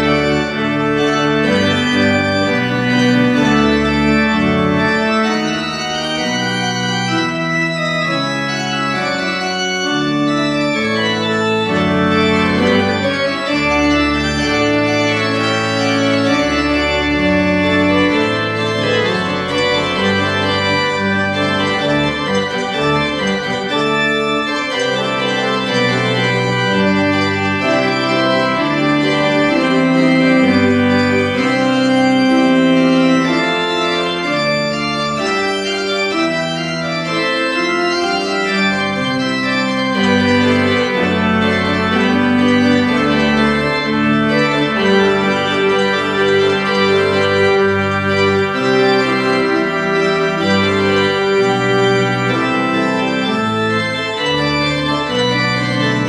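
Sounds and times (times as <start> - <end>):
pipe organ playing: 0.0 - 56.0.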